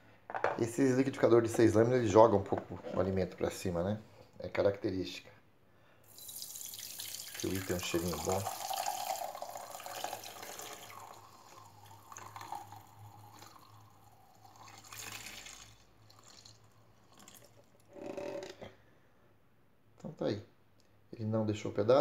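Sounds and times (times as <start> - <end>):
juice trickling through a sieve: 6.1 - 17.9.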